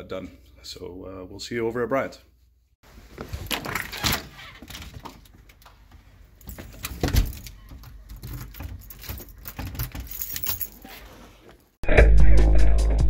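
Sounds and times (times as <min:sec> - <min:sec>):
door: 0:06.8 - 0:10.1.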